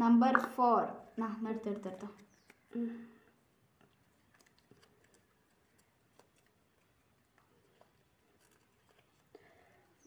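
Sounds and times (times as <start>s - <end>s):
paper crinkling being unfolded: 4.1s - 10.0s.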